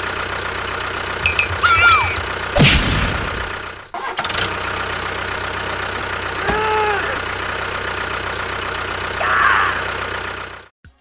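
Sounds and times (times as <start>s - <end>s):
small engine running: 0.0s - 10.7s.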